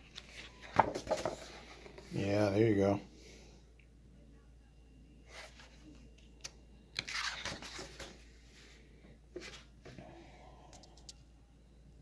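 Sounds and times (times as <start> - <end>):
book pages turning: 0.1 - 2.1, 7.0 - 8.2.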